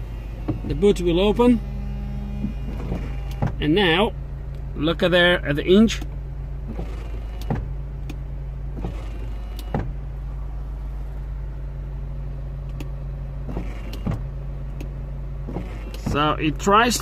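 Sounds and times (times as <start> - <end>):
hydraulic pump humming: 0.0 - 17.0.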